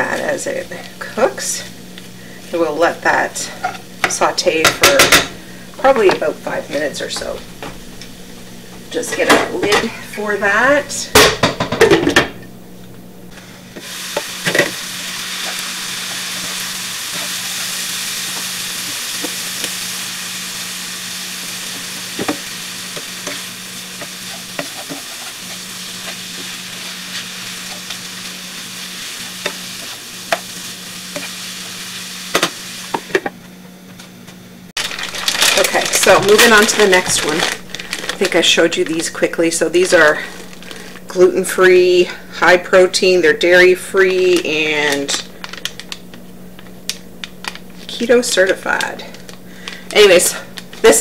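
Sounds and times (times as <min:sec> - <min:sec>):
onions sizzling in a frying pan: 0:00.0 - 0:11.9, 0:13.3 - 0:33.3, 0:34.8 - 0:51.0
spatula scraping and tapping pan: 0:24.0 - 0:26.2.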